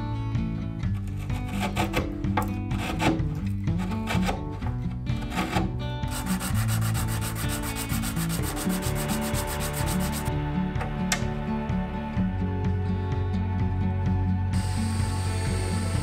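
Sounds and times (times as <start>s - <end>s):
soft background music: 0.0s - 16.0s
metal hinge rubbing on sandpaper: 1.0s - 10.3s.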